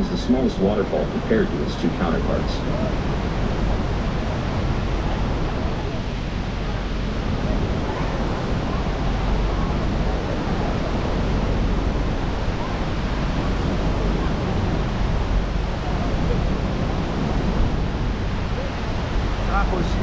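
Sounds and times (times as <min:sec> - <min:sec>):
churning river: 0:00.0 - 0:20.0
waterfall rushing: 0:00.0 - 0:20.0
wind buffeting microphone: 0:00.0 - 0:20.0.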